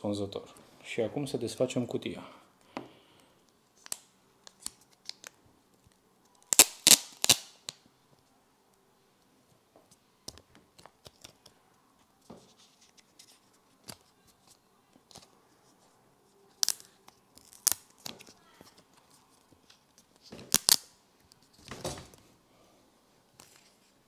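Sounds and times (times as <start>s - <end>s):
plastic film peeling crackles: 3.8s - 7.8s, 16.5s - 21.7s.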